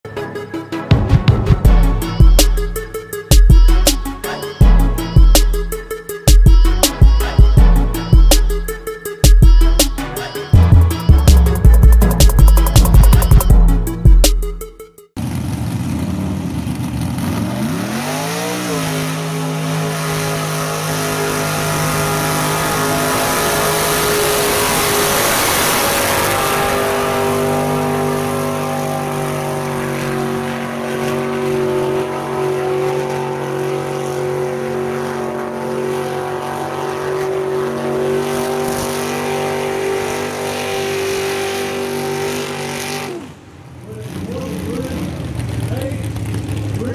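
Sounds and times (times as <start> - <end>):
truck engine revving: 0.1 - 46.9
mud and water spraying: 17.0 - 43.2.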